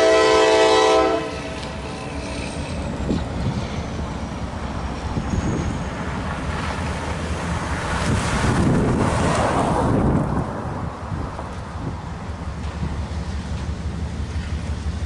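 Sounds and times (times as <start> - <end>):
wind buffeting microphone: 1.6 - 13.3
car passing: 6.0 - 14.6.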